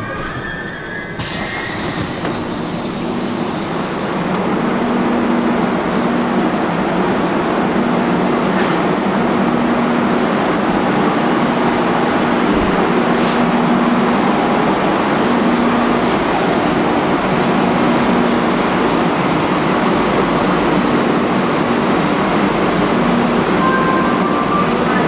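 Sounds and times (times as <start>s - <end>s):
train wheels rumbling in a tunnel: 0.0s - 25.0s.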